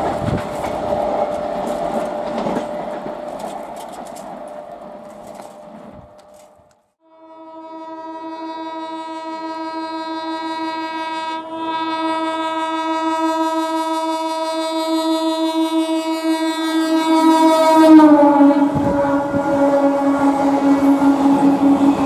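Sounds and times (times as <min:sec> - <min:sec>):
train horn blast: 0:07.0 - 0:22.0.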